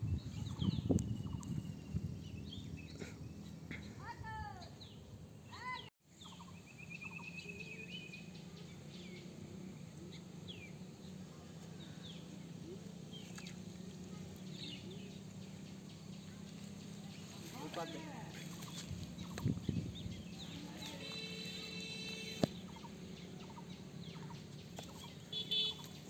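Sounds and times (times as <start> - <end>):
birds chirping: 0.0 - 26.0
bird trill: 0.4 - 3.0, 4.8 - 9.2.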